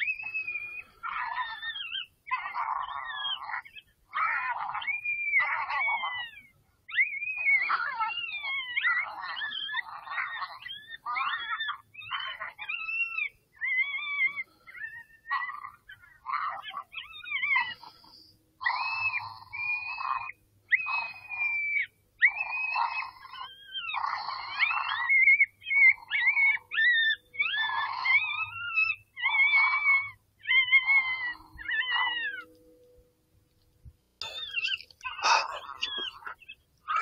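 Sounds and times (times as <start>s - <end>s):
predator call animal cries: 34.2s - 37.0s.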